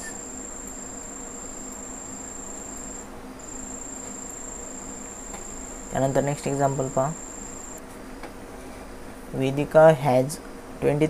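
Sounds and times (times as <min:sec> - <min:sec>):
faint low hum: 0:00.0 - 0:07.8
high-pitched trill-like whine: 0:00.0 - 0:07.8.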